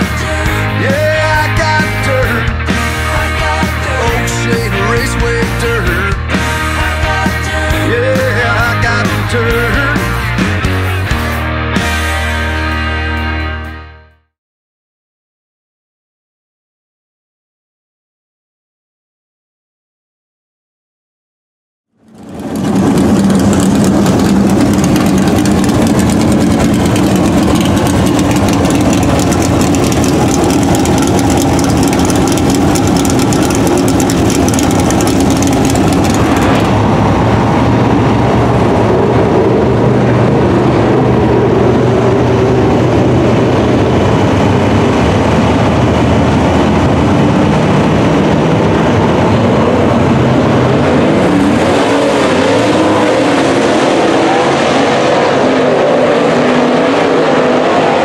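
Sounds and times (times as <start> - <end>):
race car engines running loud: 0.0 - 12.6, 21.9 - 58.0
race cars passing: 22.0 - 58.0.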